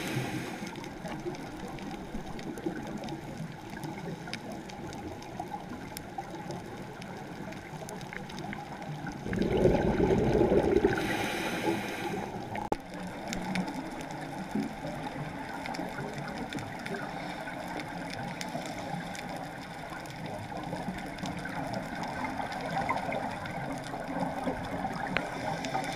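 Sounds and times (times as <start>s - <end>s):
faint underwater clicks: 0.0s - 25.9s
underwater water rush: 0.0s - 25.9s
diver's breath bubbles: 9.2s - 12.7s.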